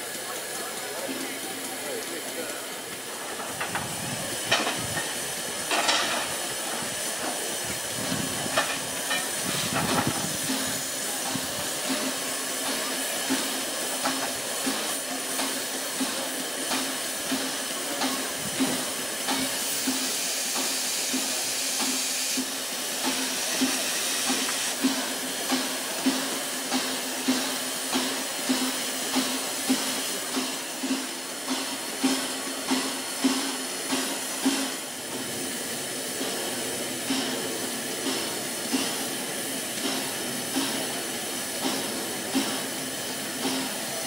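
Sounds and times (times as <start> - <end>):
steam hissing: 0.0 - 44.0.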